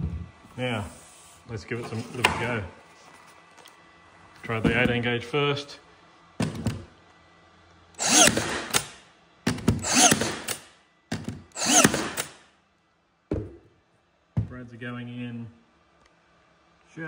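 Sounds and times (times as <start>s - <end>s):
nail gun firing: 8.0s - 12.5s.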